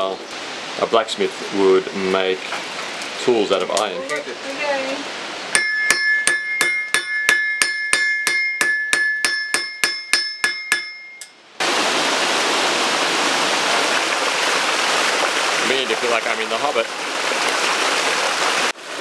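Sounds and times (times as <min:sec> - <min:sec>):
stream water rushing: 0:00.0 - 0:08.9, 0:10.4 - 0:19.0
hammer striking iron on anvil: 0:05.5 - 0:11.4.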